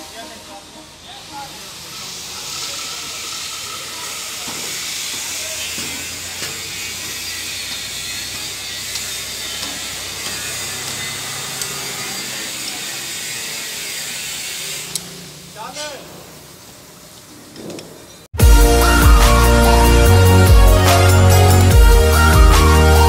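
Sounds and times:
steady hiss: 0.0 - 6.4
spanner clicking on bolt: 11.6 - 11.8.

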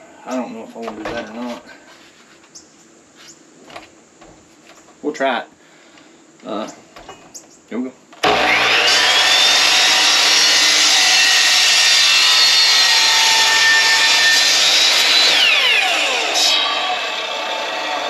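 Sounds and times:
miter saw cutting: 8.2 - 18.0.

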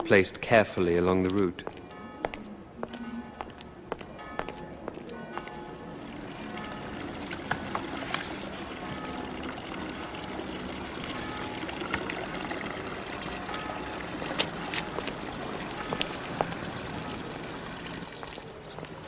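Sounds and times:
fountain water trickling: 4.3 - 19.0.

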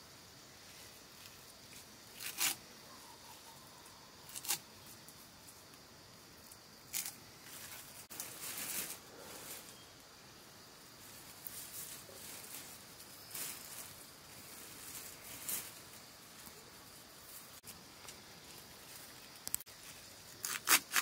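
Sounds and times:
leafy greens and plastic bag rustling: 6.8 - 10.0, 10.9 - 21.0.

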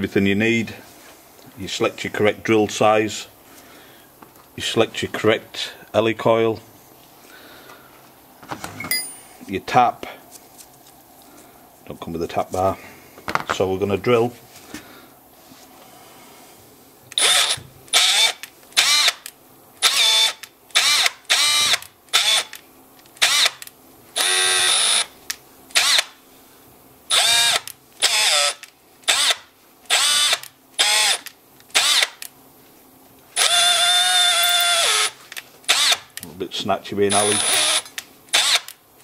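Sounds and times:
electric drill bursts: 17.2 - 19.2, 19.8 - 22.5, 23.2 - 23.6, 24.2 - 25.1, 25.8 - 26.2, 27.1 - 32.2, 33.4 - 36.1, 37.1 - 38.8.

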